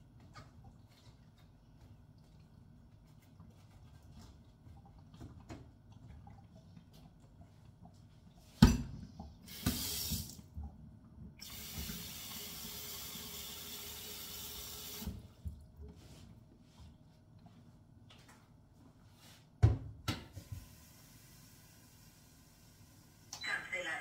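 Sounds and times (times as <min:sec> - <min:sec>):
tap water running into a pot: 0:09.3 - 0:10.5, 0:11.4 - 0:15.3.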